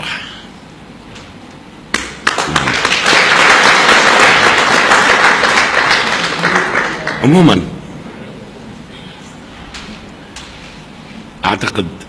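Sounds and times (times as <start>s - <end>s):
audience applauding: 1.9s - 7.6s.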